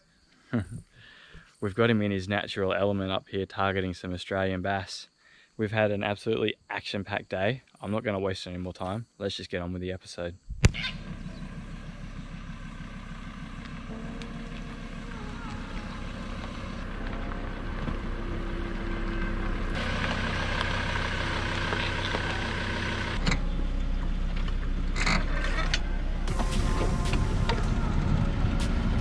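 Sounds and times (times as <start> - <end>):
vehicle engine droning: 10.7 - 29.0.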